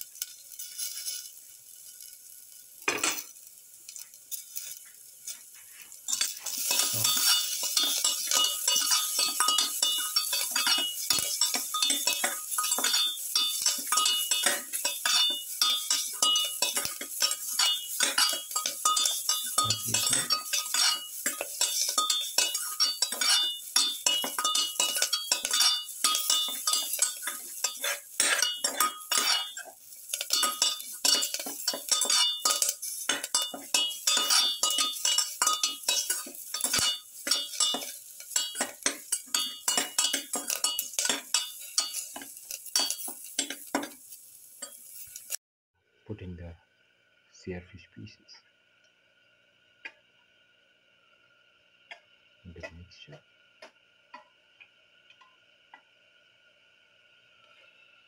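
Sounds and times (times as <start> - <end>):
metal spatula clinking and scraping: 0.0 - 45.4
light sizzle: 0.0 - 47.4, 48.0 - 58.0.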